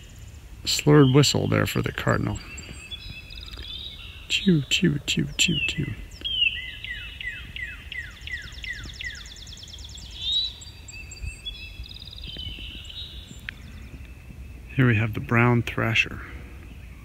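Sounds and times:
bird singing down-slurred whistles: 5.4s - 14.8s.

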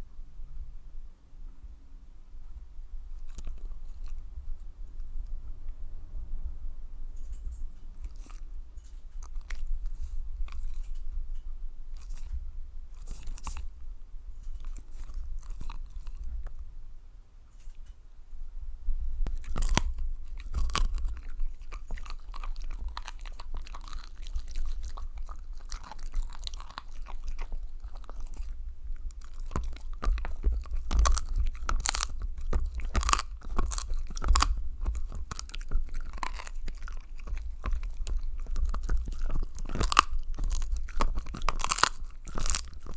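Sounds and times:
dog crunching chew treat: 3.1s - 5.0s, 7.2s - 13.8s, 14.4s - 16.6s, 19.3s - 42.9s.

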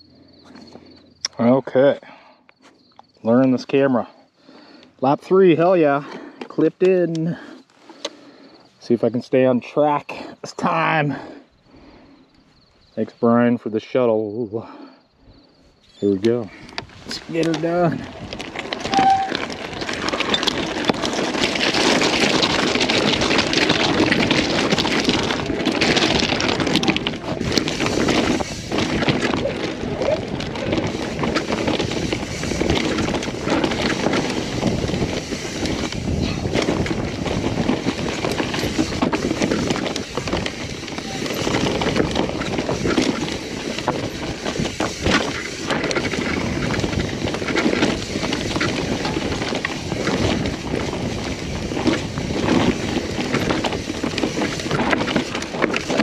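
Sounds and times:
bike knocking and rattling: 16.0s - 56.0s
bike tyres and rushing air: 16.0s - 56.0s.

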